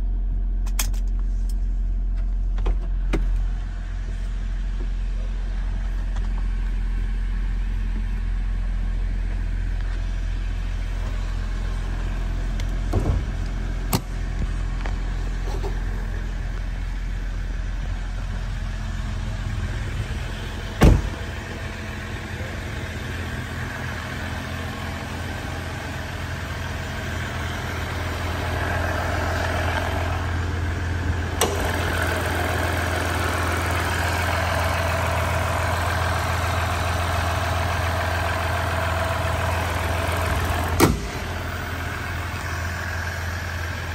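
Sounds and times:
diesel engine idling: 0.0s - 43.9s
loud thud: 12.9s - 13.3s, 20.8s - 21.3s.

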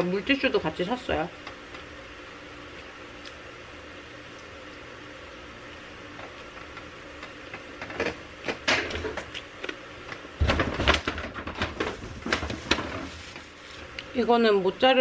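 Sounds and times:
paper bag rustling and crinkling: 10.5s - 13.8s.

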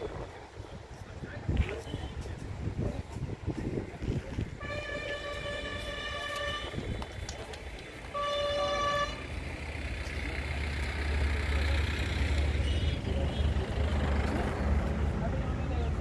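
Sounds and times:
vehicle horn honking: 4.6s - 7.0s, 8.1s - 9.4s.

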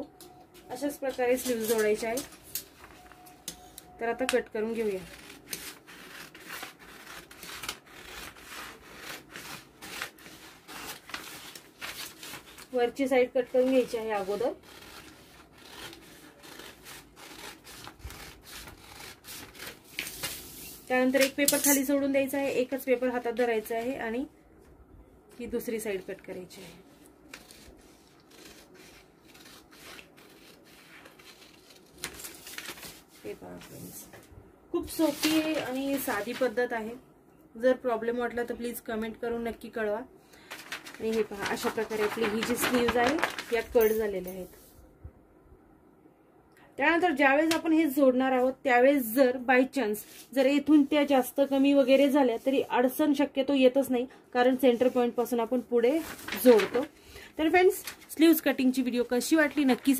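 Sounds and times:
scissors snipping paper: 27.3s - 32.4s.

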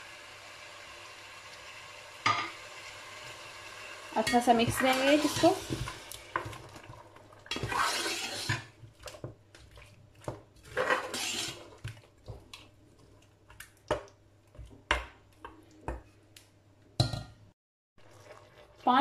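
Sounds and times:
spoon scraping steel pot: 7.5s - 8.7s, 10.7s - 11.7s.

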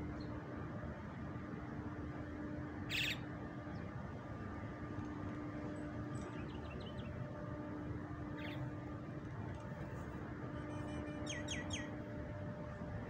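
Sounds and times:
steady background hum: 0.0s - 13.0s
bird chirping: 2.9s - 3.2s, 10.7s - 11.9s.

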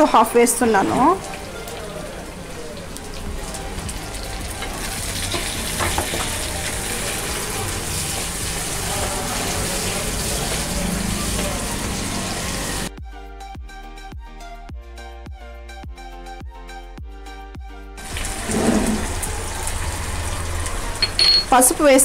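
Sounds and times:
background music: 0.0s - 22.0s
food sizzling in hot oil: 2.8s - 12.9s, 18.0s - 22.0s.

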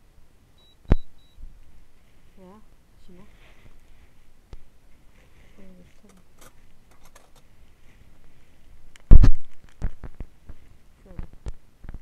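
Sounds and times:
kitchen things clicking and tapping: 6.0s - 7.4s.

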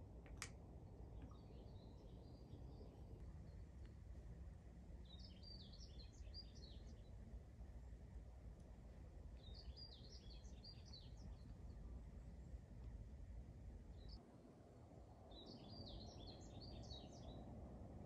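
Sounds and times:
faint low rumble: 0.0s - 18.0s
songbird singing: 1.1s - 3.9s, 4.9s - 7.3s, 9.3s - 12.7s, 13.9s - 14.2s, 15.3s - 17.6s.

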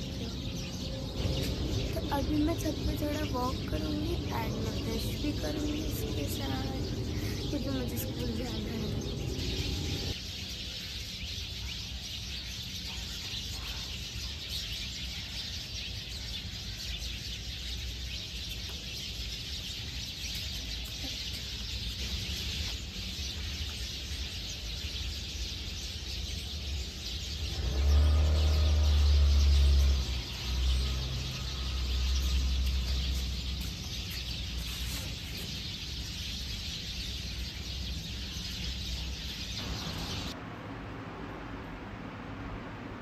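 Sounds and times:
low rumble: 0.0s - 10.2s
birds chirping: 0.0s - 40.4s.

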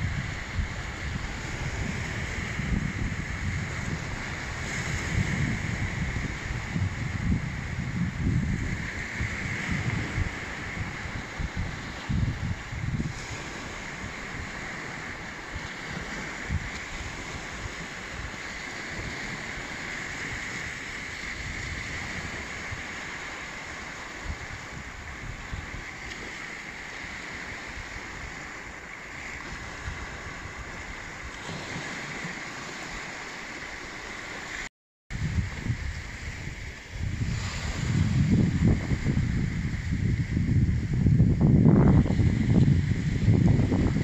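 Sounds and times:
small waves breaking on sand: 0.0s - 44.0s
wind rumbling on microphone: 0.0s - 44.0s.

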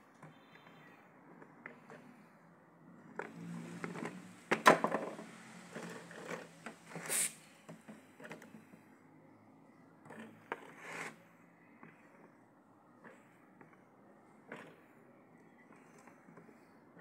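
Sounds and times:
rustling scrape: 3.1s - 7.5s, 10.1s - 12.3s.

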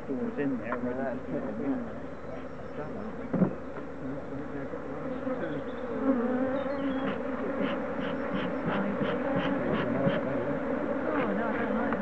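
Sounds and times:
bees buzzing: 1.2s - 12.0s.

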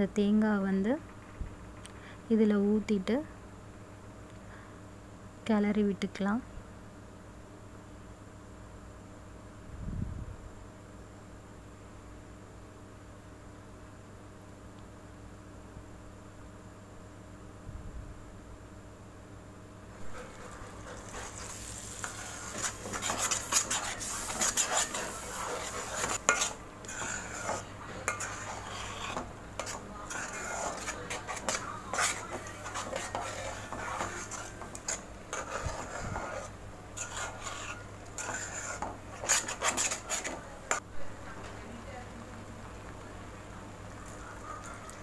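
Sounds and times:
spoon stirring thick gravy: 20.1s - 40.8s.

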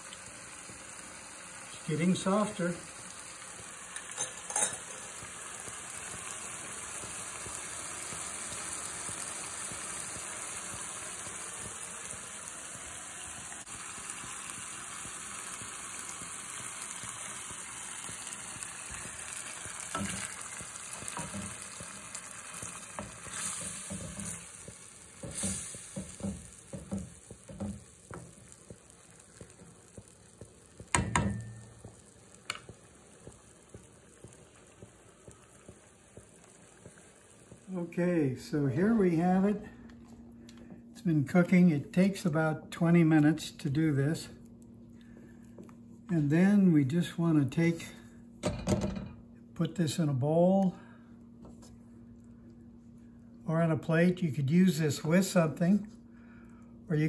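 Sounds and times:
risotto sizzling in frying pan: 0.0s - 38.0s.

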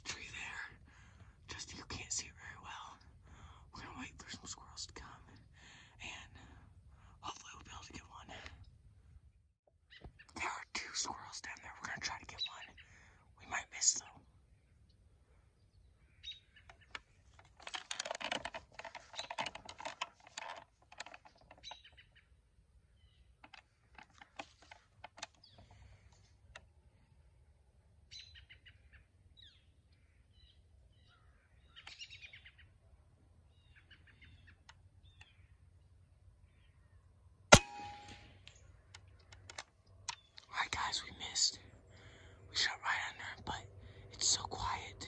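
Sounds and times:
birds chirping: 9.8s - 17.8s, 18.7s - 20.0s, 21.0s - 26.3s, 33.5s - 45.0s
air gun shot: 37.5s - 38.3s.

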